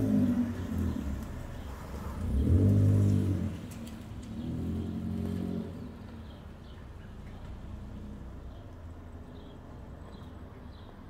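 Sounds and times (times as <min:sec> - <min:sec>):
car engine passing: 0:00.0 - 0:06.4.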